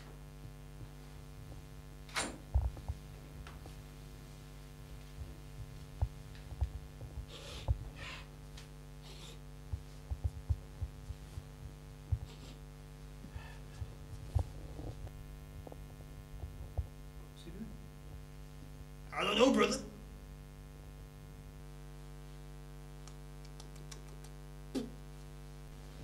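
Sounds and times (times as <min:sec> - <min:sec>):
electrical hum: 0:00.0 - 0:26.0
soft low thumps: 0:02.5 - 0:03.4, 0:05.1 - 0:08.0, 0:09.6 - 0:12.4, 0:13.1 - 0:19.0.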